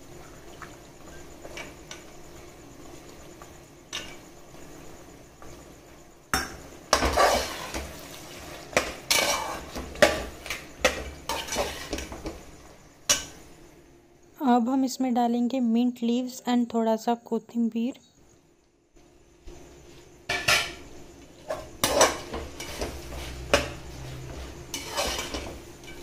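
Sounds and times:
spoon scraping metal pot: 0:10.9 - 0:12.2, 0:24.7 - 0:26.0.

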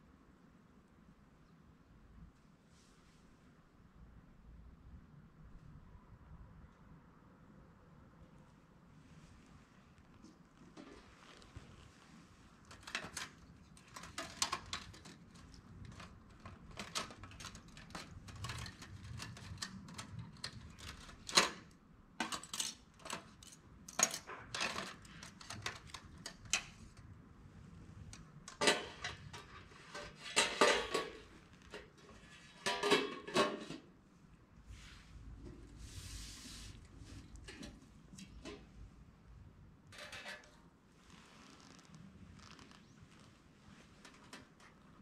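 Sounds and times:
metal instruments rattling on tray: 0:28.5 - 0:31.3.

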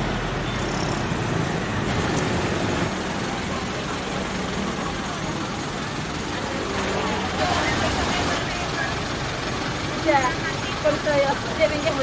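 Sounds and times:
bus idling: 0:00.0 - 0:12.0
road traffic rumble: 0:00.0 - 0:12.0.

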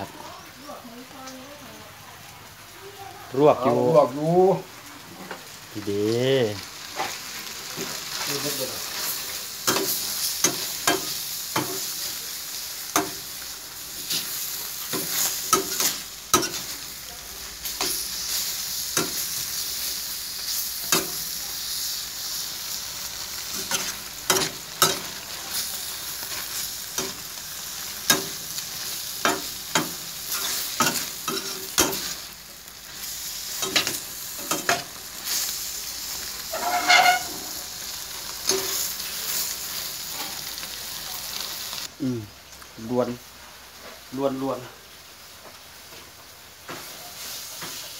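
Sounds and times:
meat sizzling in a frying pan: 0:00.0 - 0:47.9
spatula scraping a pan: 0:29.0 - 0:32.3, 0:33.0 - 0:37.6.

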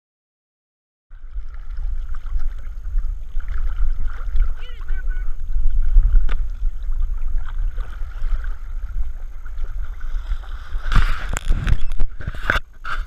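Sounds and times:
steady low rumble: 0:01.1 - 0:12.9
water sloshing and splashing: 0:01.1 - 0:13.0.

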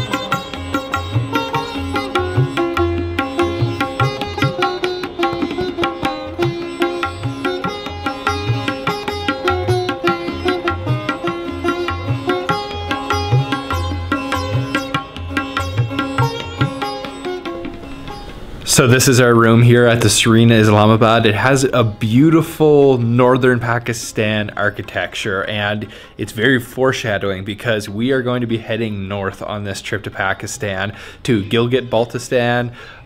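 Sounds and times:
tabla rhythm: 0:00.0 - 0:30.8
plucked sitar melody: 0:00.0 - 0:33.0.

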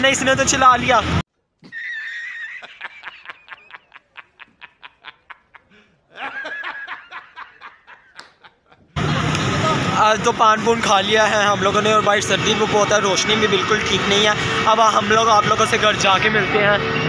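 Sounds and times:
man laughing hard: 0:01.6 - 0:09.3.

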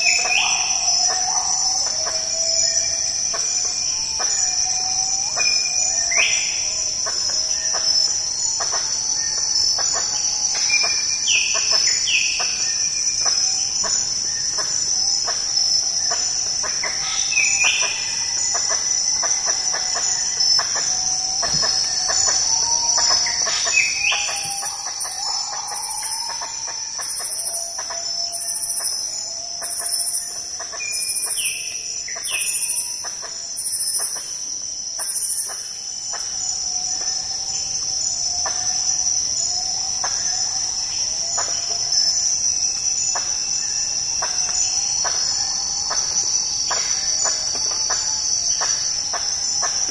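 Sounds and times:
high insect pulsing: 0:00.0 - 0:49.9
high-pitched insect drone: 0:00.0 - 0:49.9
bird call: 0:16.1 - 0:29.0.

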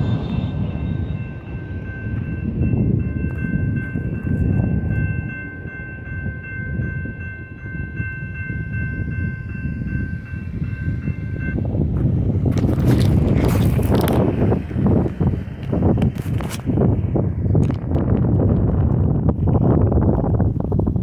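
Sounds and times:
railroad crossing bell ringing: 0:00.0 - 0:12.6
low rumble: 0:00.0 - 0:21.0.

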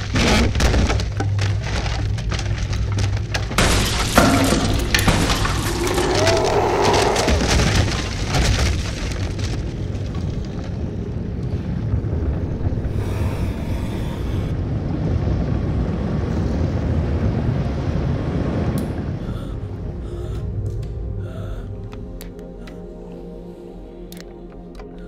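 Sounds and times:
wood splintering: 0:00.0 - 0:10.7
debris crashing down: 0:00.0 - 0:13.2
loud low rumble: 0:02.7 - 0:23.1.

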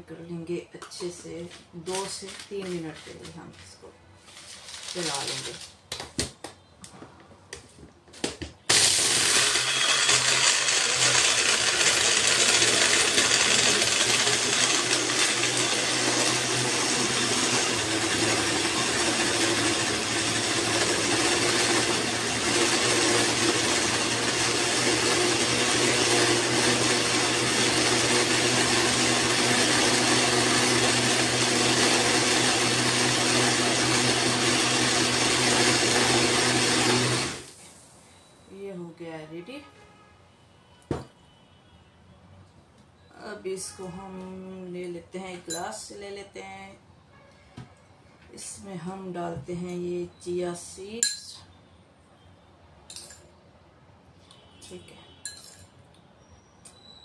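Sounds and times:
blender motor humming: 0:08.7 - 0:37.6.

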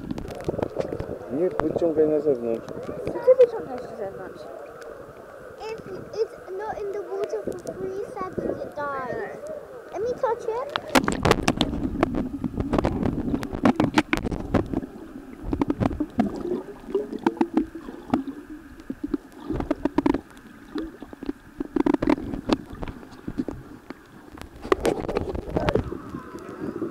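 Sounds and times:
water gurgling underwater: 0:00.0 - 0:26.9
sharp clicks and knocks: 0:10.7 - 0:16.4.

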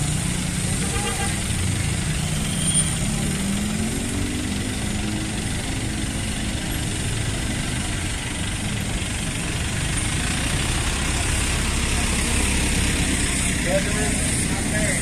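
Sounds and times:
street traffic noise: 0:00.0 - 0:15.0
bus engine idling: 0:03.6 - 0:15.0.

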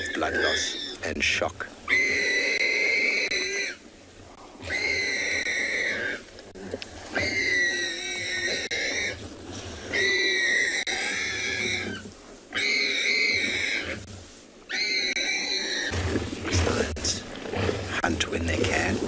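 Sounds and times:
warthog squealing: 0:00.0 - 0:14.1, 0:14.7 - 0:19.0.

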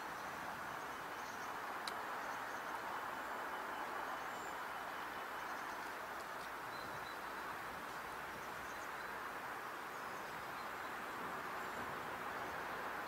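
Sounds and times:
steady rushing outdoor noise: 0:00.0 - 0:13.0
faint bird chirps: 0:02.2 - 0:07.6.

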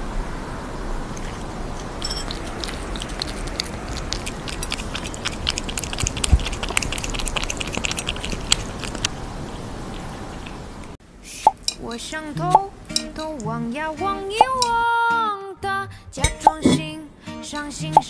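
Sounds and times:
cat lapping from a metal spoon: 0:02.0 - 0:09.1.

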